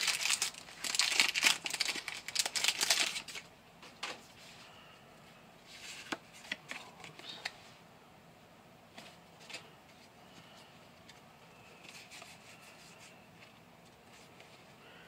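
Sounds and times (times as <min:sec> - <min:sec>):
foil wrapper crinkling: 0:00.0 - 0:03.5.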